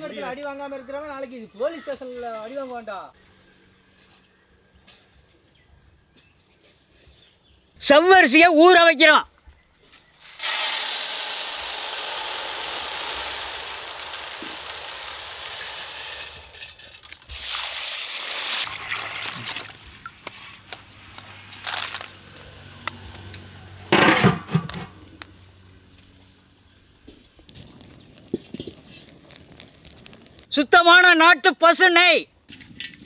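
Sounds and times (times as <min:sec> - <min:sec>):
grains pouring into water: 0:10.3 - 0:20.3, 0:27.5 - 0:30.5
water splashing: 0:17.0 - 0:20.7.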